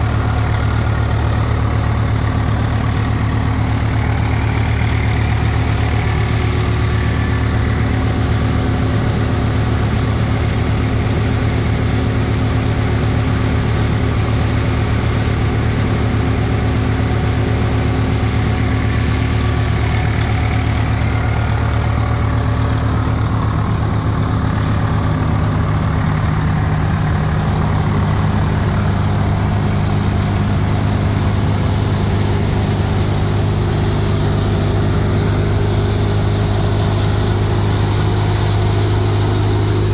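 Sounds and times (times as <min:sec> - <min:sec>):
thresher machine droning: 0:00.0 - 0:39.9.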